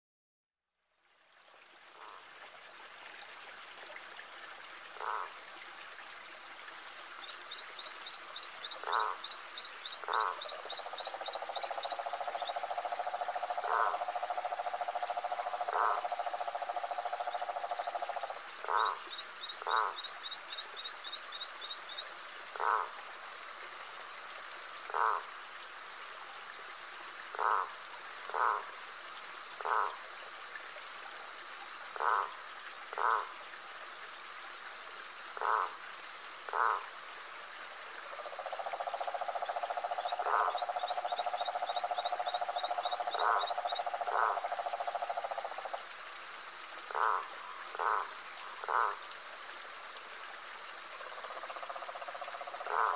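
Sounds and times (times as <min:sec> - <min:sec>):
frogs croaking: 0:01.9 - 0:02.3, 0:04.8 - 0:52.9
frog trilling: 0:05.0 - 0:05.3, 0:08.0 - 0:22.0, 0:22.6 - 0:23.0, 0:24.9 - 0:25.3, 0:27.3 - 0:28.7, 0:29.6 - 0:30.0, 0:32.0 - 0:32.4, 0:33.0 - 0:33.3, 0:35.4 - 0:35.8, 0:36.5 - 0:36.9, 0:38.3 - 0:45.8, 0:46.9 - 0:49.0, 0:51.2 - 0:52.9.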